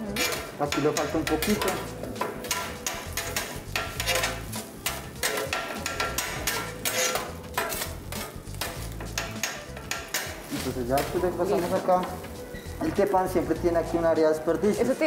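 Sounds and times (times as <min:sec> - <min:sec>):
metal spatulas scraping on griddle: 0:00.0 - 0:15.0
sizzling: 0:00.0 - 0:15.0.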